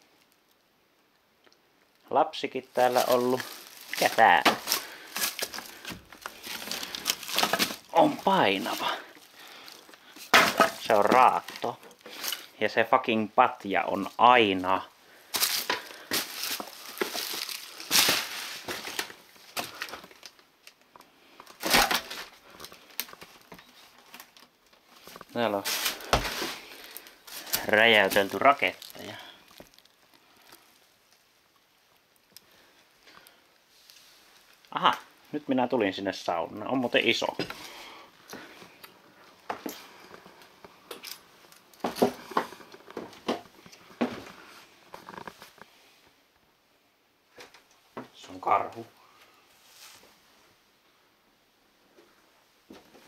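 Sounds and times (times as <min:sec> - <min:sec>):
footsteps crunching over debris: 0:02.7 - 0:12.6, 0:13.9 - 0:20.4, 0:21.4 - 0:30.8, 0:36.9 - 0:45.6.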